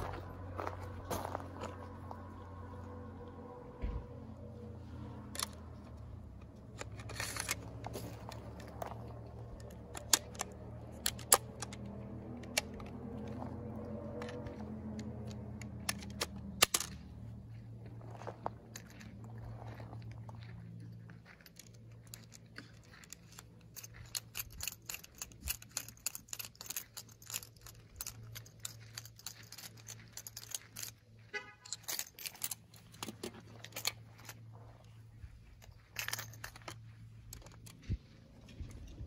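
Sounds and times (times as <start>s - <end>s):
rifle parts clicking and rattling: 0.0s - 39.0s.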